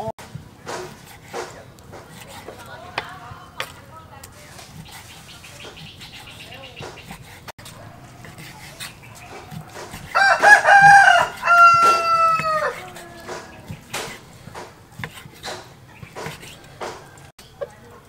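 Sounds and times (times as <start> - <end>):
knife cutting on wooden board: 0.6 - 3.8, 4.5 - 17.3
rooster crowing: 9.2 - 14.1, 16.6 - 17.3.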